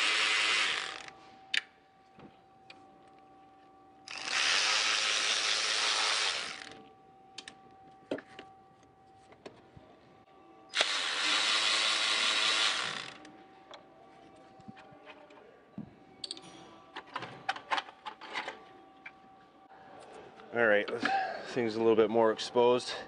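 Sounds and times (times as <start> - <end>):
cordless ratchet motor: 0.0 - 1.1, 4.1 - 6.8, 10.8 - 13.2
tools clicking and knocking: 16.2 - 19.2.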